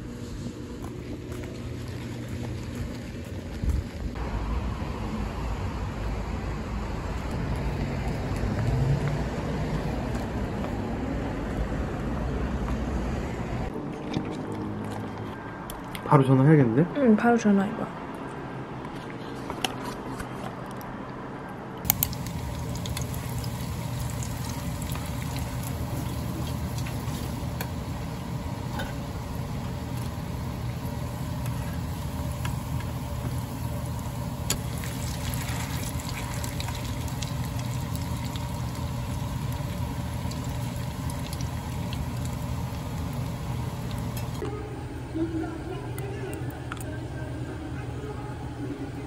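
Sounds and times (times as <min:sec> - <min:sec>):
cutlets deep-frying in oil: 0:21.9 - 0:44.4.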